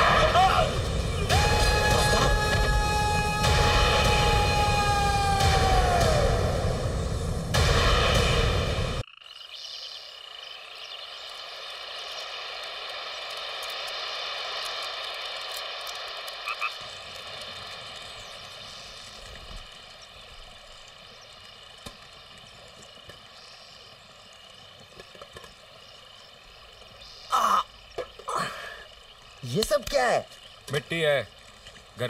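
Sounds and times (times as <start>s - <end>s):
frog and insect chorus: 9.0s - 32.0s.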